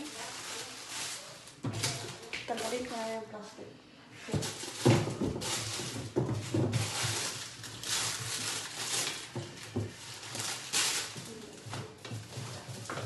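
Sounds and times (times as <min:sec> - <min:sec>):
plastic packaging crinkling: 0:00.0 - 0:03.3, 0:04.3 - 0:13.0
items knocking on shelves: 0:04.3 - 0:13.0.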